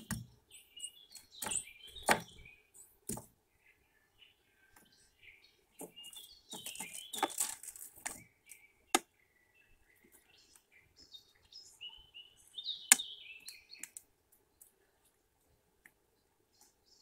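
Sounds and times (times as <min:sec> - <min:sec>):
small birds chirping: 0:00.0 - 0:17.0
woodpecker bill knocking: 0:01.1 - 0:02.5.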